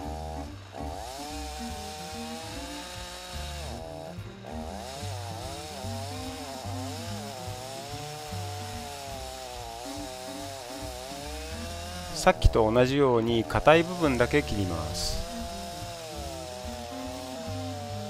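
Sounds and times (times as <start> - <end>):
chainsaw cutting wood: 0.0 - 18.0.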